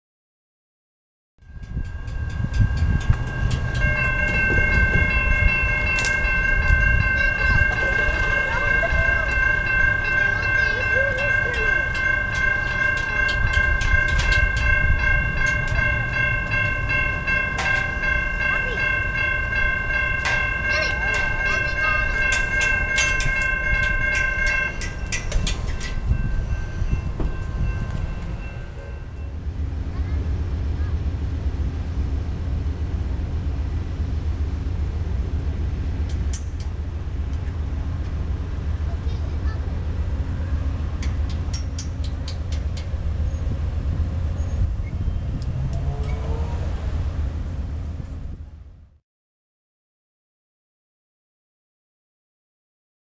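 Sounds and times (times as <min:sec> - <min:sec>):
high ringing tones: 0:01.4 - 0:29.5
railroad crossing bell ringing: 0:01.4 - 0:30.8, 0:36.3 - 0:48.4
low rumble: 0:01.4 - 0:49.0.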